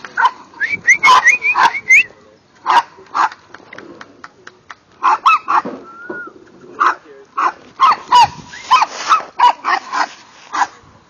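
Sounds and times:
dogs yapping: 5.0 - 5.8, 6.8 - 10.8.

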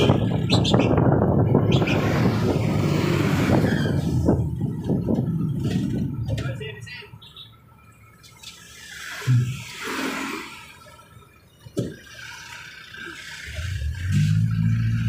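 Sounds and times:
traffic whoosh: 0.0 - 6.7, 11.9 - 15.0.

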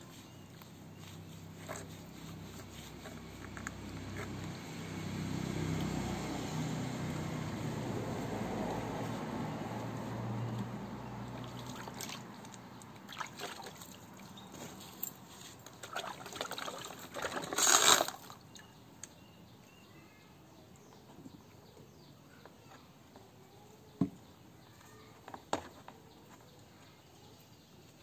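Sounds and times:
water splashing in a plastic basin: 11.2 - 14.5, 15.7 - 18.7.

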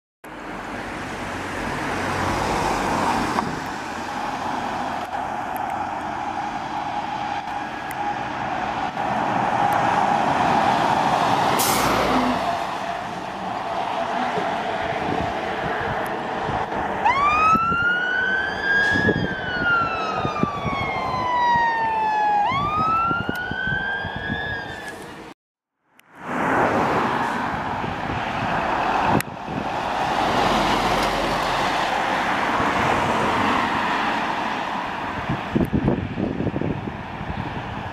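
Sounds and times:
road noise: 0.2 - 37.9
cars driving past: 0.3 - 22.3, 26.1 - 37.9
fire engine siren wailing: 3.8 - 25.1.

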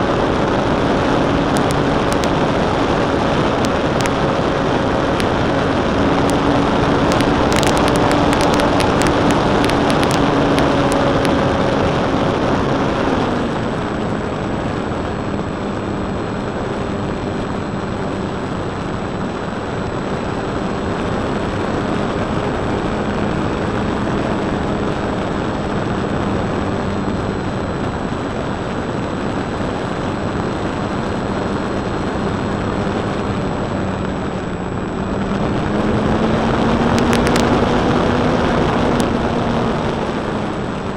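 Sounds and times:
electric motor and propeller drone: 0.0 - 40.9
wind rush on microphone: 0.0 - 40.9
sharp clicks: 5.1 - 11.4, 35.2 - 40.0.

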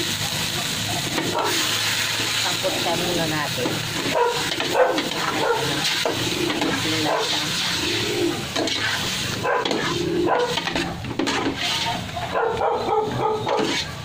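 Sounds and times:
dogs barking and yelping: 0.2 - 1.8, 4.0 - 14.0
metal spatula scraping a pot: 3.6 - 12.3, 13.4 - 14.0.

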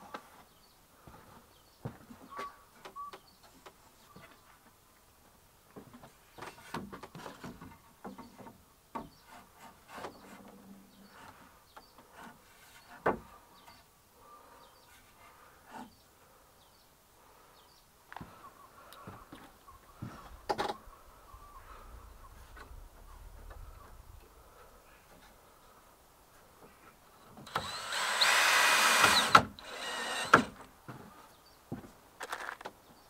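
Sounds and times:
wooden boards knocking and scraping: 12.2 - 13.3.

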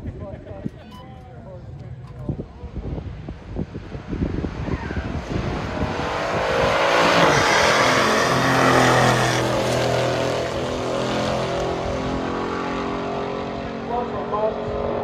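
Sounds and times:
cars accelerating hard: 3.2 - 15.0.

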